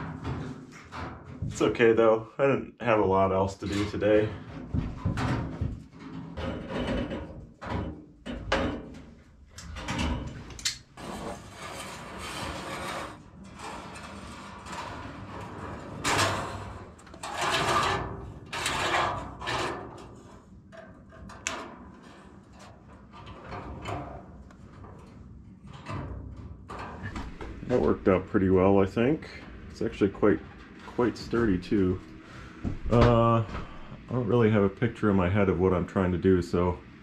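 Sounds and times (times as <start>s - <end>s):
wire mesh scraping metal pipe: 9.9s - 32.2s.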